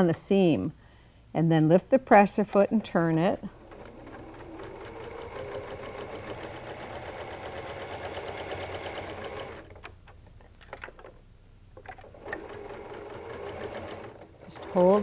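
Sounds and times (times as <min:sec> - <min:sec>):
sewing machine stitching: 0:02.0 - 0:10.2, 0:11.9 - 0:15.0.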